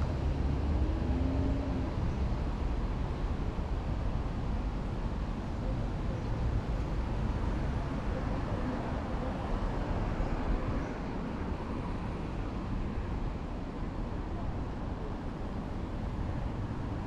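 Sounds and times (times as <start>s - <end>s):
low traffic rumble: 0.0s - 17.0s.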